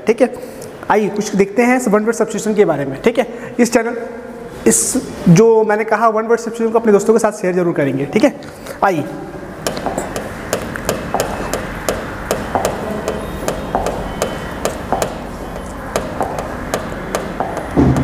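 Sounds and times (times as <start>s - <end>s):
steady low hum: 8.7s - 18.0s
chalk tapping on blackboard: 9.6s - 18.0s.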